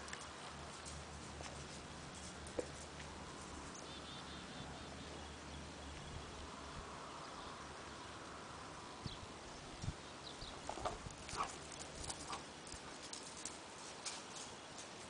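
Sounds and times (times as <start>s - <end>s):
faint bird chirping: 3.5s - 12.8s.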